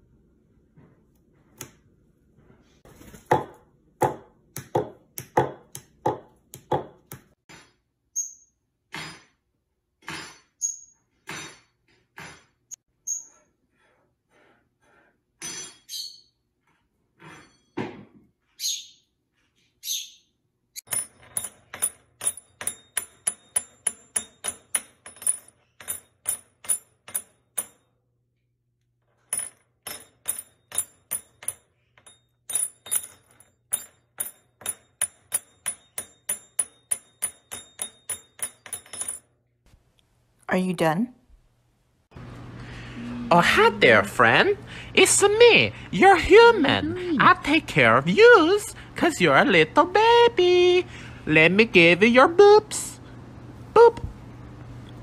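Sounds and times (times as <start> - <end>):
parrot chirping: 18.6 - 19.2, 19.8 - 20.4.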